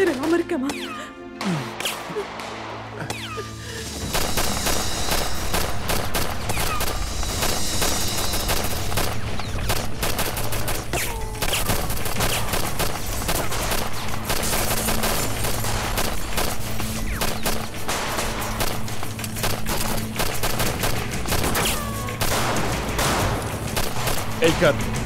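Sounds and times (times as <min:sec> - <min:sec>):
automatic rifle fire: 0:04.1 - 0:11.0, 0:11.7 - 0:24.7.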